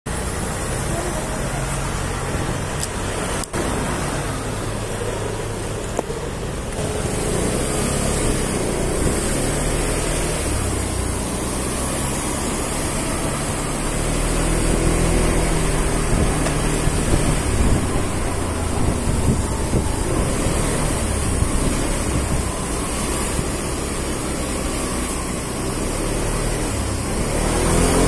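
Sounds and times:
scooter engine running: 0.1 - 28.0
wind rushing over microphone: 13.0 - 23.7.

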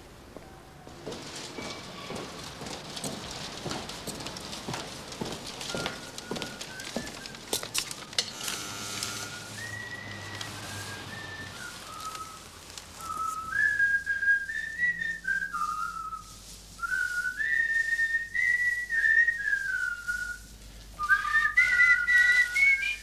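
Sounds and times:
person whistling a tune: 5.7 - 7.5, 9.2 - 23.0.

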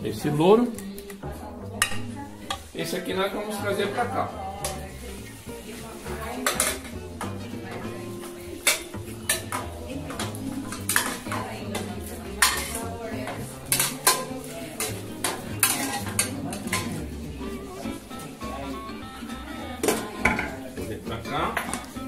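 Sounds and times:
metal utensils clinking on pot: 6.2 - 17.2, 19.8 - 20.7.

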